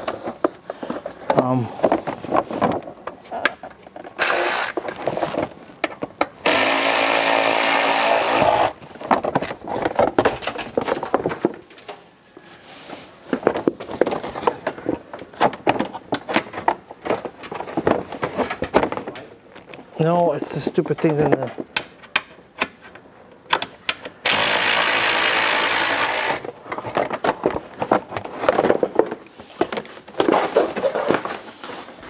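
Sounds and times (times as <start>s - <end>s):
power drill running: 4.2s - 4.8s, 6.4s - 8.8s, 24.2s - 26.4s.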